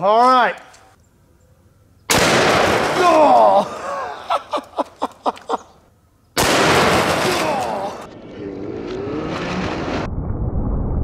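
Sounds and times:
slowed rifle shot boom: 2.1s - 3.0s, 6.4s - 7.3s.

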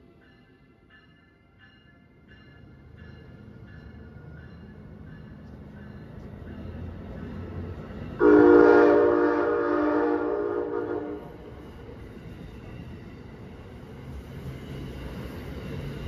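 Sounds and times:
rumble of approaching train: 0.0s - 16.0s
locomotive air horn blast: 8.2s - 11.5s.

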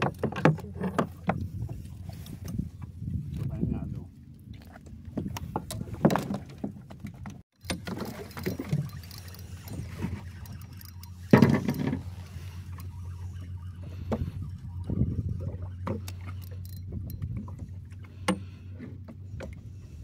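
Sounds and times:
knocks and handling clatter: 0.0s - 2.6s, 5.2s - 12.9s.

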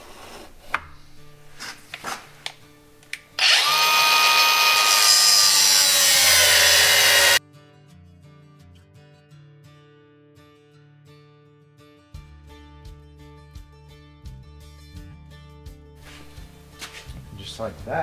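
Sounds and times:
cutoff wheel cutting steel: 3.4s - 7.4s.

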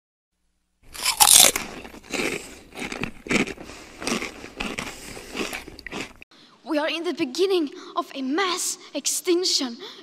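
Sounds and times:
crunchy bite: 0.8s - 6.2s
crunching chews: 0.9s - 6.2s.

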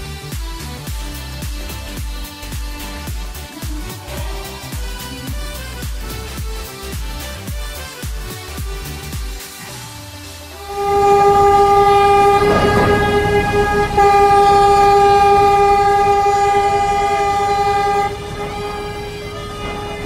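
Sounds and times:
ship's horn long blast: 10.5s - 20.0s
crunching collision: 10.7s - 17.0s.

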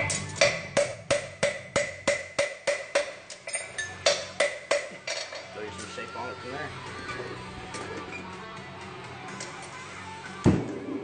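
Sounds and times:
hammer ringing on anvil: 0.4s - 4.9s.

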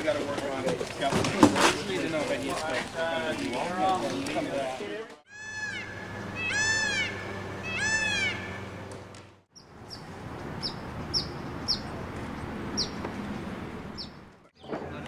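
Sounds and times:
peacock calling: 5.3s - 8.9s.

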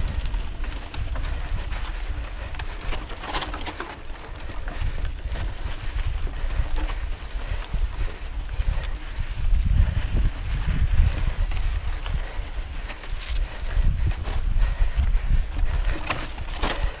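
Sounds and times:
bike tyres and frame rattling: 0.0s - 17.0s
wind buffeting microphone: 0.0s - 17.0s.

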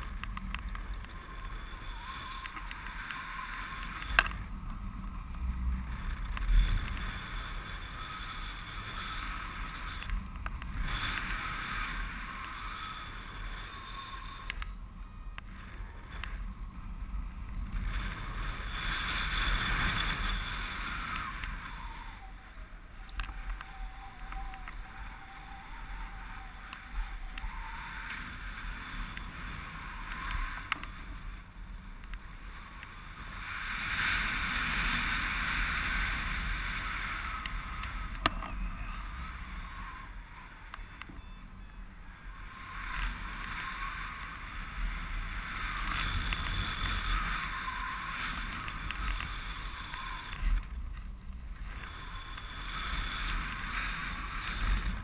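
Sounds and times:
faint steady tone: 0.0s - 55.0s.

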